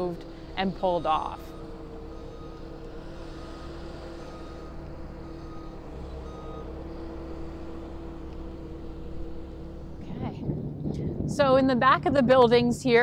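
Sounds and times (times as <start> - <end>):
backup alarm beeping: 0.0 - 10.0
distant heavy machinery running: 0.0 - 13.0.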